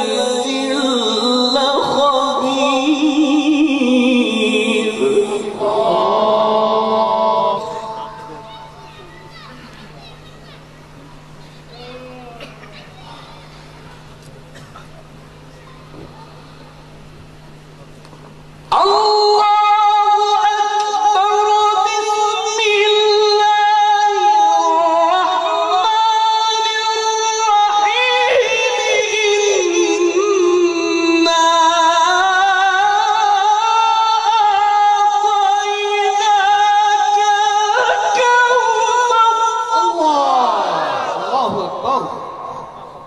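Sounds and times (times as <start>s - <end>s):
man chanting melodically: 0.0s - 8.8s, 18.7s - 43.0s.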